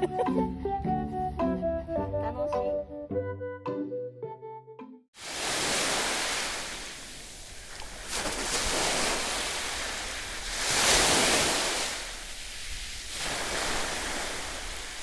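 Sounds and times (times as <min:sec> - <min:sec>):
small waves washing ashore: 0:05.2 - 0:15.0.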